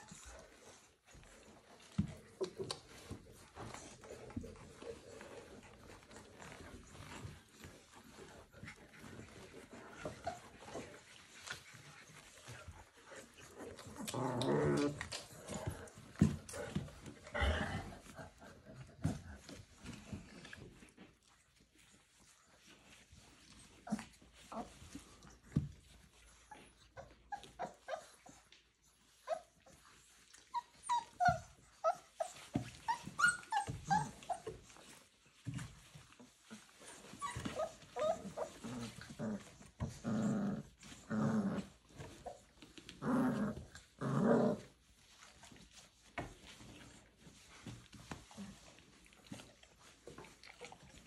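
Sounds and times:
puppy growling: 0.0s - 20.9s, 30.2s - 51.0s
puppies yipping and whimpering: 29.2s - 40.0s.

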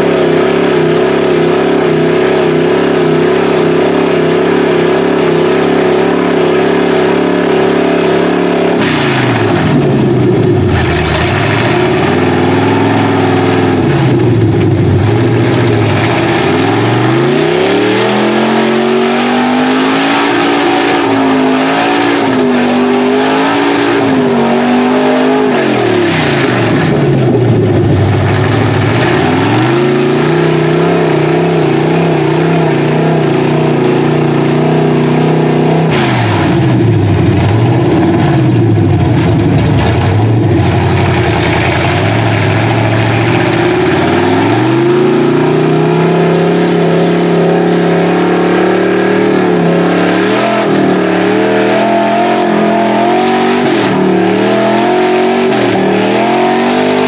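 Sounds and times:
tires churning through mud: 0.0s - 57.0s
truck engine revving: 0.0s - 57.0s.

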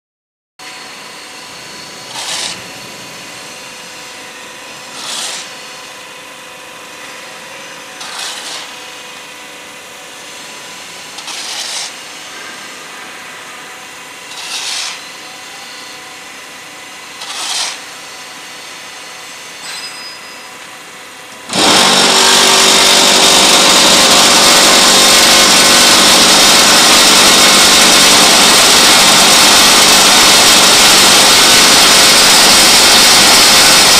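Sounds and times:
shovel scraping concrete mix: 2.0s - 2.7s, 4.9s - 5.7s, 8.0s - 8.9s, 11.0s - 12.6s, 14.3s - 15.2s, 17.2s - 18.0s, 21.5s - 33.9s
electric vibrator motor running: 21.5s - 33.9s.

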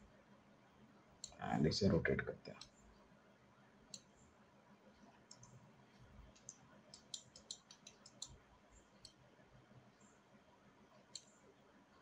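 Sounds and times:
computer mouse clicks: 1.2s - 1.4s, 3.9s - 4.2s, 5.3s - 5.6s, 6.3s - 9.2s, 11.0s - 11.4s.

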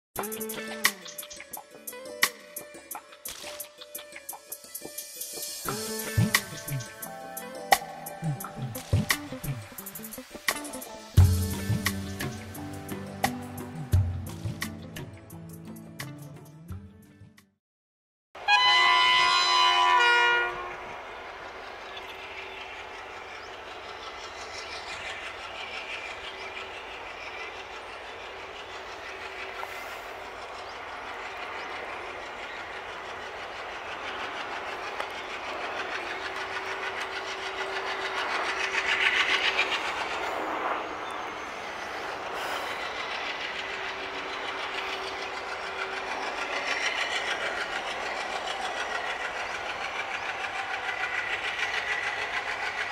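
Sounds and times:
diesel engine chugging: 5.7s - 15.2s, 20.9s - 52.9s
locomotive horn: 18.4s - 21.0s.

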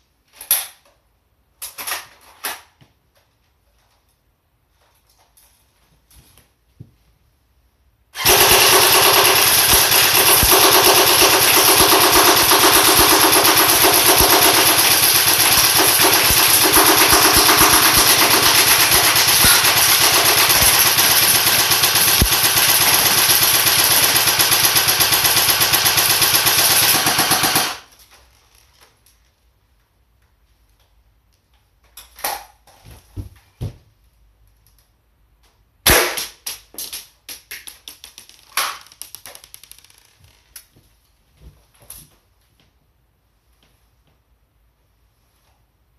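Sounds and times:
airsoft gun full auto fire: 8.2s - 27.9s, 35.8s - 36.3s.

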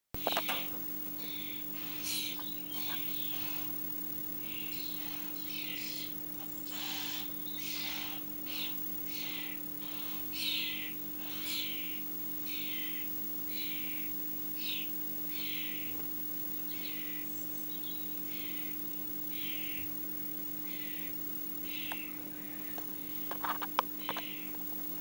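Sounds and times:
steady electrical hum: 0.2s - 25.0s.

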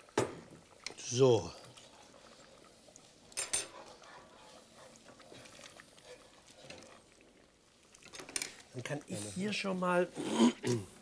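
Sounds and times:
faint kitchen noise: 0.0s - 11.0s
metal utensil clinking saucepan: 3.3s - 3.9s.

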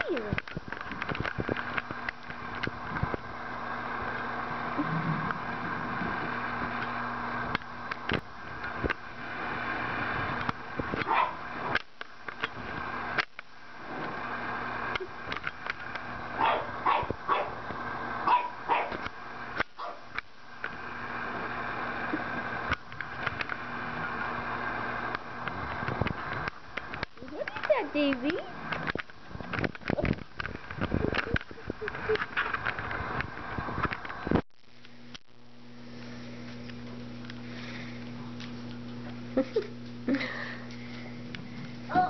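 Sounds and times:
steady hum: 0.0s - 42.0s
puppy yipping and barking: 11.1s - 11.4s, 16.4s - 17.5s, 18.3s - 19.0s.

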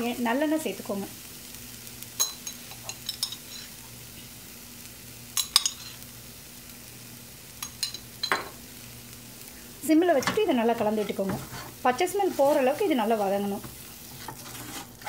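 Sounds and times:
oil sizzling in a pan: 0.0s - 15.0s.

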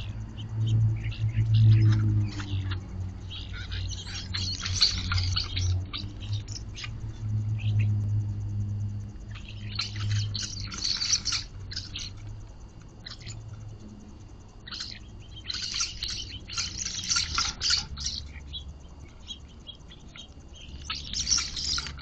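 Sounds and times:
low steady hum: 0.0s - 22.0s
small birds chirping: 0.0s - 22.0s.

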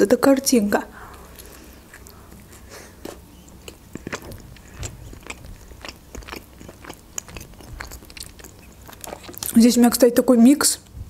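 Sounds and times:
person chewing sandwich: 1.0s - 9.6s.

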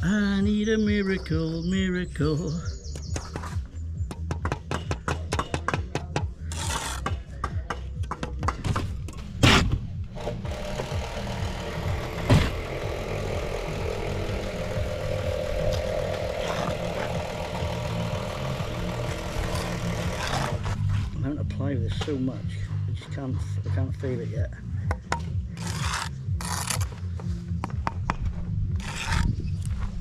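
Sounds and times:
trowel scraping mortar: 6.4s - 7.3s, 15.7s - 17.1s, 19.1s - 21.2s, 25.6s - 27.0s, 28.8s - 29.7s
steady low rumble: 9.0s - 30.0s.

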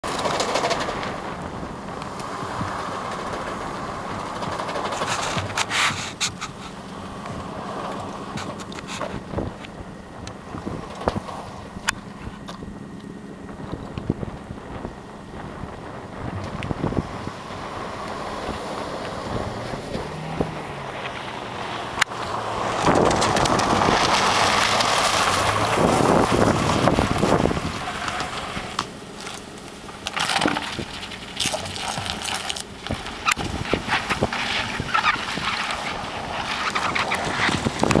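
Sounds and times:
sharp clicks and crackles: 0.0s - 1.2s, 22.0s - 38.0s
cars driving on ice: 0.0s - 38.0s
wind buffeting microphone: 0.6s - 28.8s, 30.5s - 38.0s.

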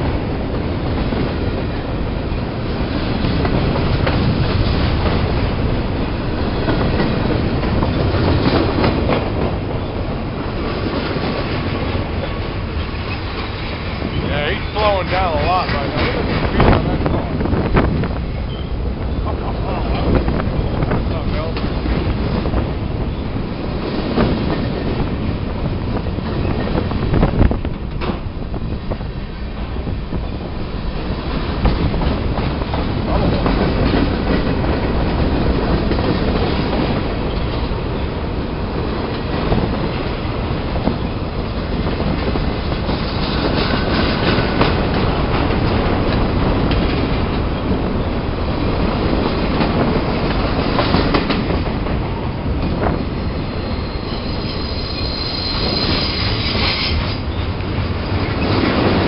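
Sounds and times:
train wheels rolling on rail: 0.0s - 59.0s
wheels clacking over rail joints: 0.0s - 59.0s.

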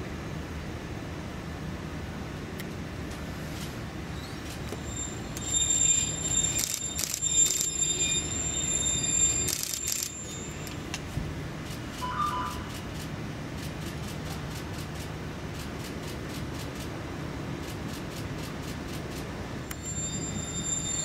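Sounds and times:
electric train rumbling: 0.0s - 21.0s
train wheels squealing: 4.2s - 11.0s, 12.0s - 12.7s, 19.7s - 21.0s
two-note tone: 12.0s - 12.7s.

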